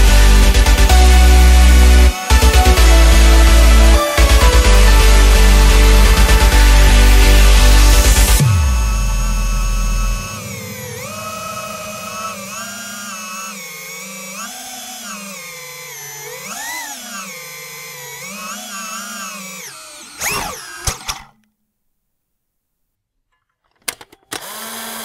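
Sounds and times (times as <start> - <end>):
quadcopter motors whining: 0.0 - 21.4, 24.3 - 25.0
click: 20.2 - 21.6.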